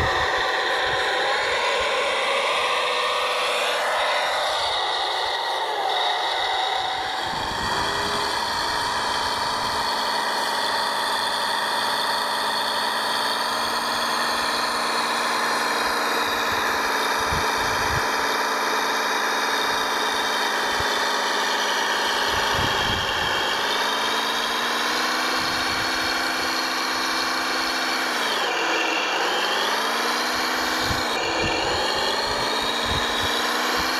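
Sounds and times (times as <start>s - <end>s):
toy construction machine motors: 0.0s - 33.9s.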